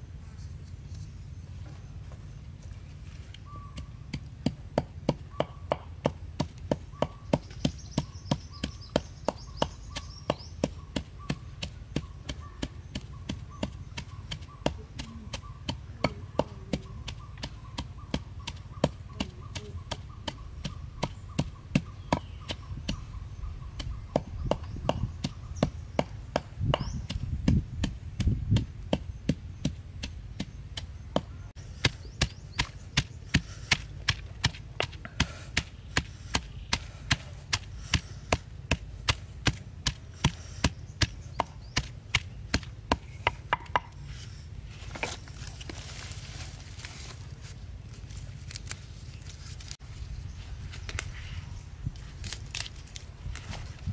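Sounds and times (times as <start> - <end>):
wooden pestle pounding in mortar: 23.7 - 44.0.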